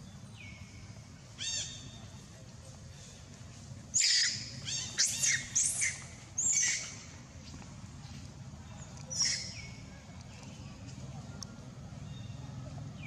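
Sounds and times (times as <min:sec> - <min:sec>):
baby monkey shrieking: 0:04.0 - 0:06.9.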